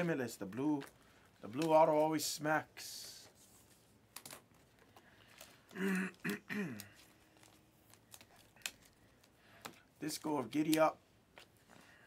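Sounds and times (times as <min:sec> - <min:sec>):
cards being flipped by hand: 0:06.9 - 0:11.8.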